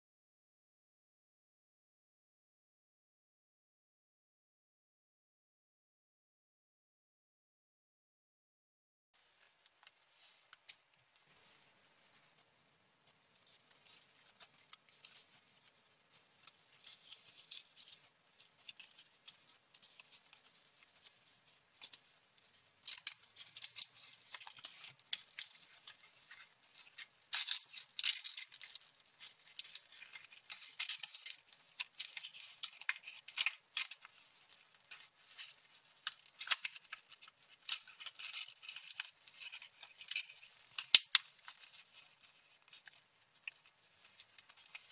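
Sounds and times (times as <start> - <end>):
paper rustling and crinkling: 9.2 - 44.9.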